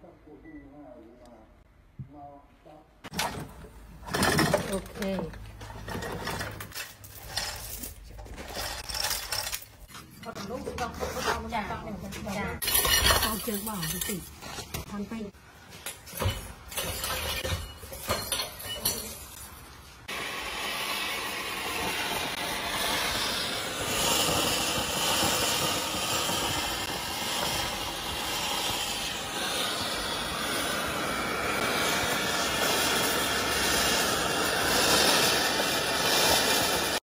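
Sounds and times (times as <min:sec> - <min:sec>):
gas torch flame hissing: 0:18.9 - 0:37.0.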